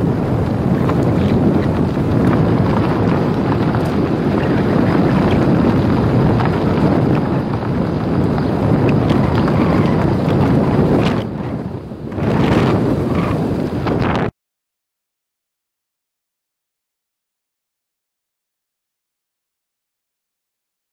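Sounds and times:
tyres rumbling on gravel: 0:00.0 - 0:14.3
wind buffeting microphone: 0:00.0 - 0:14.3.

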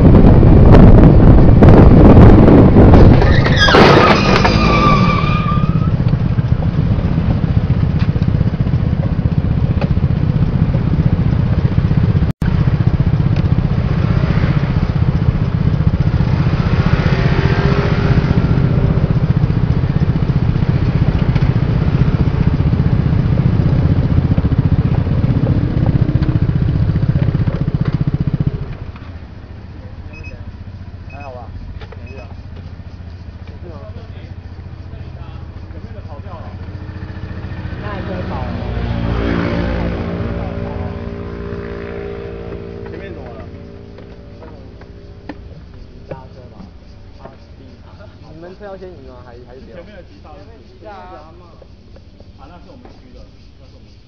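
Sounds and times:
short squeal: 0:03.1 - 0:06.1, 0:30.0 - 0:31.4
scooter engine running: 0:05.8 - 0:48.7.

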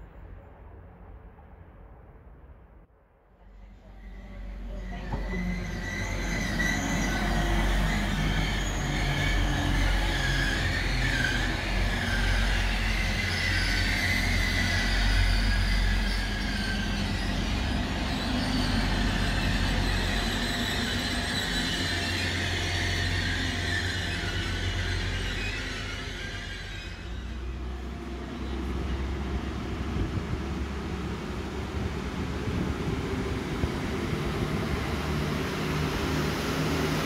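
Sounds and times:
diesel train engine rumble: 0:00.0 - 0:37.0
wheels squealing on rails: 0:03.6 - 0:30.1.

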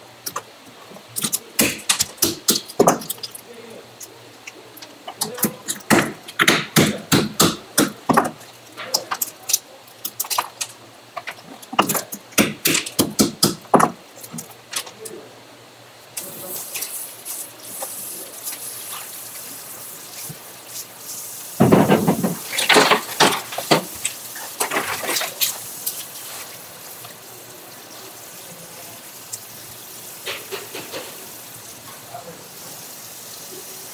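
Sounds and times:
water spray hissing: 0:16.2 - 0:21.7, 0:22.3 - 0:33.9.

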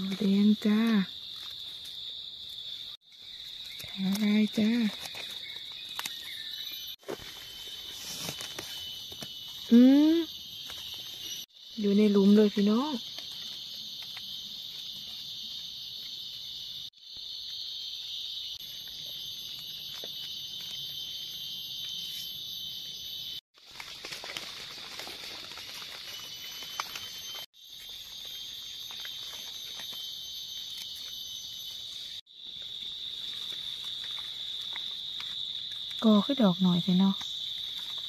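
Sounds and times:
crickets chirping: 0:00.0 - 0:38.0
hands rustling leaf litter: 0:23.6 - 0:27.4.

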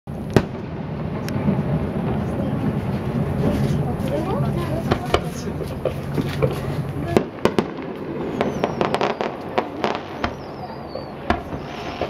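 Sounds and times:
fireworks bangs and crackles: 0:00.1 - 0:12.0
firework whistles gliding down: 0:06.4 - 0:12.0.

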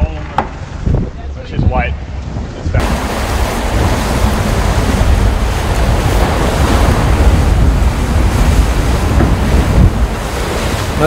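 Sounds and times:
wind rumbling on microphone: 0:00.0 - 0:11.0
sea water rushing: 0:02.8 - 0:11.0.

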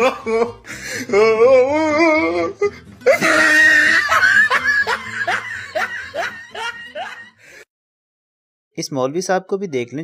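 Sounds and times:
wailing voice: 0:01.1 - 0:04.2
shrill cry: 0:01.1 - 0:07.4
rapid laughter: 0:03.0 - 0:07.6.

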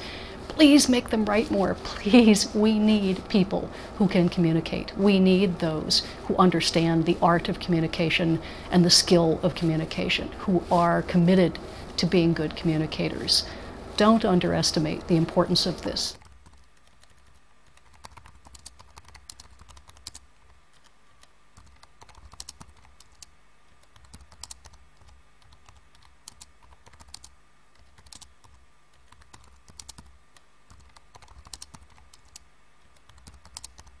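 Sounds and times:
low steady hum: 0:00.0 - 0:34.0
keyboard typing clicks: 0:30.7 - 0:32.4, 0:33.0 - 0:33.9.

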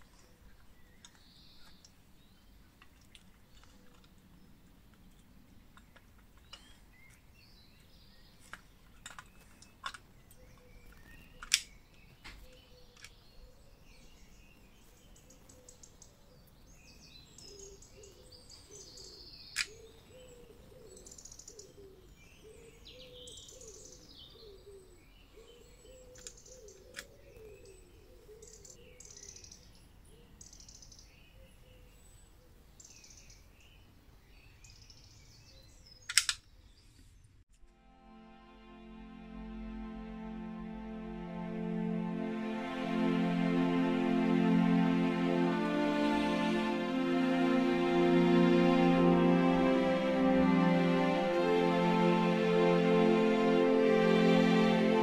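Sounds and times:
faint birds chirping: 0:00.0 - 0:37.5
sharp handling clicks: 0:36.1 - 0:36.5.

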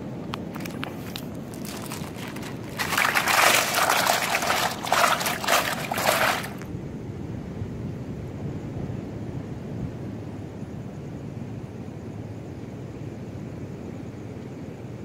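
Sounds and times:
plastic sack rustling: 0:00.6 - 0:06.6.

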